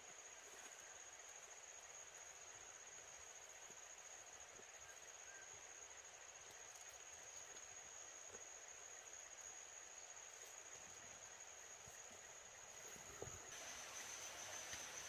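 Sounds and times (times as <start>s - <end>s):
crickets trilling: 0.0s - 15.0s
low hiss: 0.0s - 15.0s
faint ticks: 13.0s - 15.0s.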